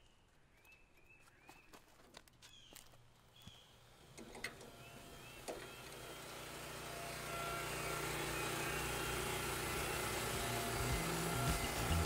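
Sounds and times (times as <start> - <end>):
small gasoline engine running: 3.8 - 12.0.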